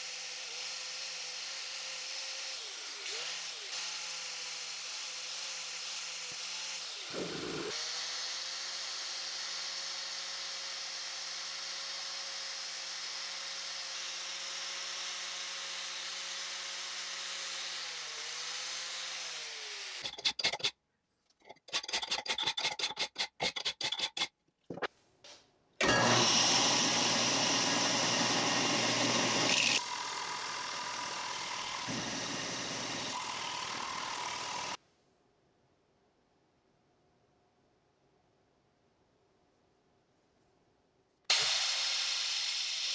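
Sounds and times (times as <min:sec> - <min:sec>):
angle grinder on steel: 0:00.0 - 0:20.7, 0:25.8 - 0:34.8
hand file strokes: 0:21.5 - 0:24.4
belt sander grinding: 0:25.8 - 0:34.8.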